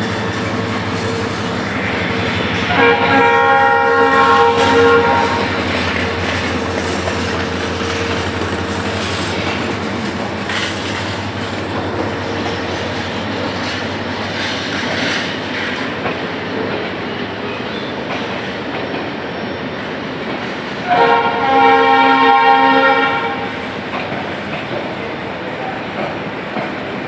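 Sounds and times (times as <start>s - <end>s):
locomotive engine drone: 0.0s - 19.3s
train wheels clattering over joints: 4.4s - 19.2s.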